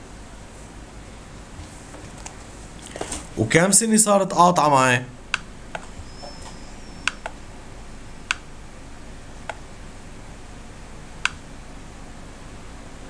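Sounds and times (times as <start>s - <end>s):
sharp clicks: 5.3s - 7.4s, 8.2s - 8.5s, 11.2s - 11.4s.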